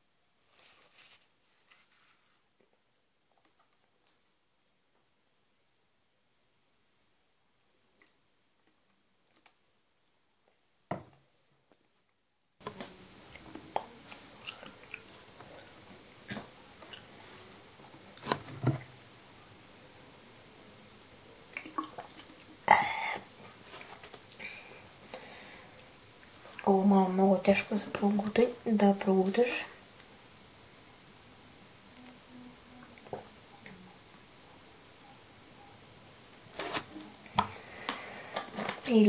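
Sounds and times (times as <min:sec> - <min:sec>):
wet chewing mouth sounds: 0:13.4 - 0:17.6.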